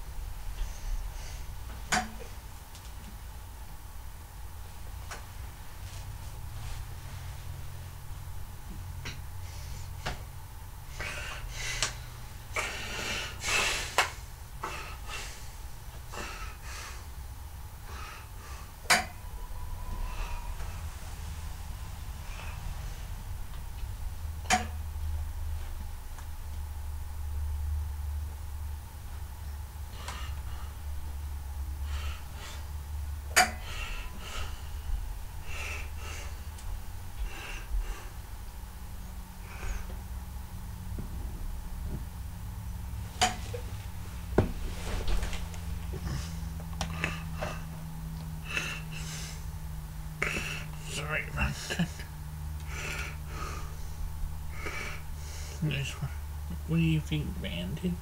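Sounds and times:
low room hum: 0.0s - 58.0s
person breathing: 9.4s - 10.1s, 10.9s - 17.2s, 17.8s - 23.8s, 29.9s - 31.0s, 31.8s - 32.8s, 33.4s - 36.6s, 37.2s - 38.3s, 39.4s - 40.1s, 44.6s - 47.8s, 48.4s - 49.5s, 50.2s - 56.2s.

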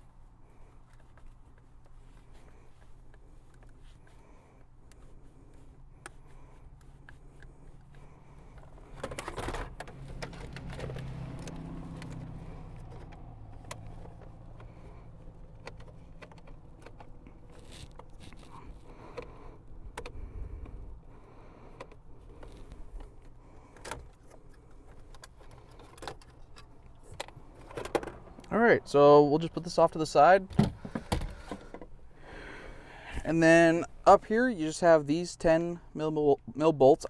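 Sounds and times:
plastic trim clicks and rattles: 15.5s - 18.4s.

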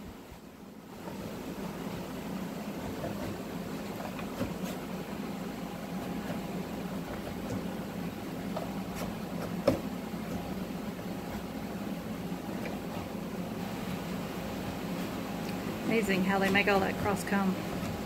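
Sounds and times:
honeybees droning: 0.0s - 18.0s
hive tool scraping wood: 2.7s - 7.8s, 16.0s - 18.0s.

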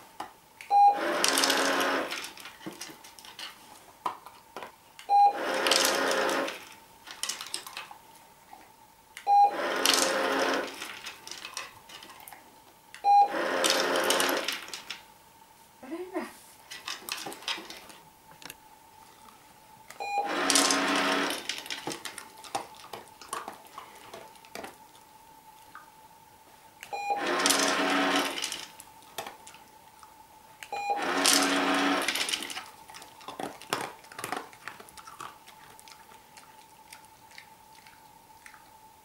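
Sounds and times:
dog eating crunches: 1.2s - 8.8s, 9.8s - 13.0s, 20.5s - 26.0s, 26.7s - 39.0s
short beep: 20.0s - 20.3s
dispenser motor whirring and rattling: 27.2s - 28.8s, 30.9s - 32.7s.

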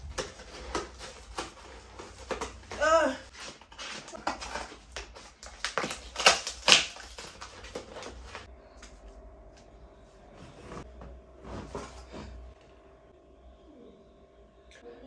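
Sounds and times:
cardboard ripping and snipping: 0.0s - 8.5s
room hum: 0.0s - 15.0s.

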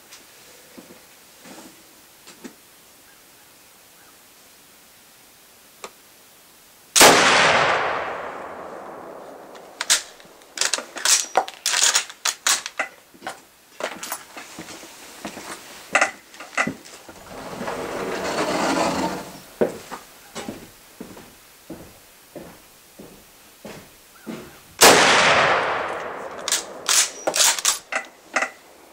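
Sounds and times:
rifle shot with echo: 7.0s - 10.1s, 24.8s - 27.5s
rifle bolt clicking: 25.9s - 28.1s.

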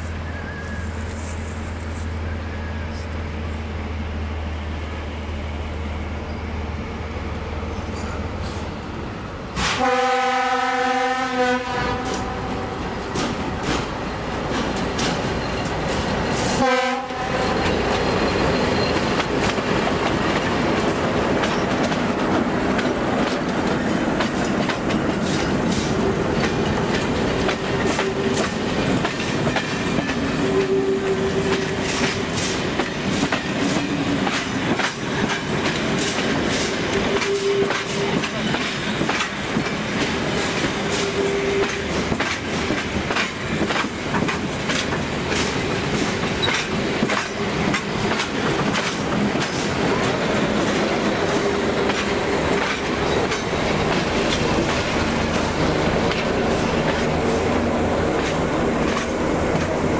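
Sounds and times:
train rumbling past: 0.0s - 59.9s
train horn blast: 9.6s - 12.8s, 16.5s - 17.7s, 37.0s - 38.4s
clickety-clack over rail joints: 11.7s - 59.9s.

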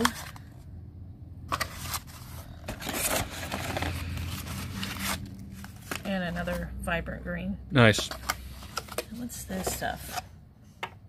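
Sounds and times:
paper and cardboard rustling: 0.0s - 0.5s, 1.5s - 6.7s, 7.9s - 10.2s.

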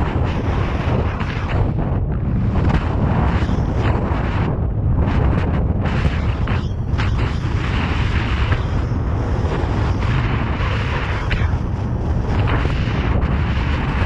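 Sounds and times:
skis carving over snow: 0.0s - 4.6s
wind buffeting microphone: 0.0s - 14.0s.

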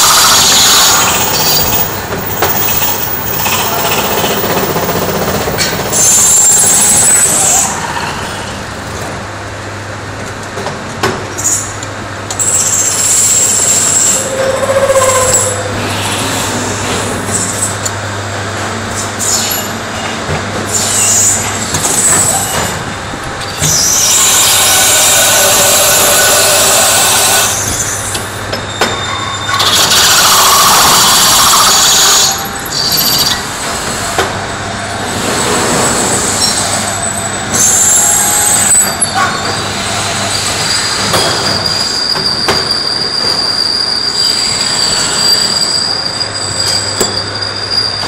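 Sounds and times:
high-pitched tool squeals: 0.0s - 4.7s, 5.9s - 8.6s, 12.4s - 17.9s, 20.7s - 22.8s, 23.4s - 34.1s, 35.2s - 48.0s
harsh metal cutting noise: 0.0s - 8.9s, 12.4s - 18.0s, 18.9s - 28.5s, 29.4s - 48.0s.

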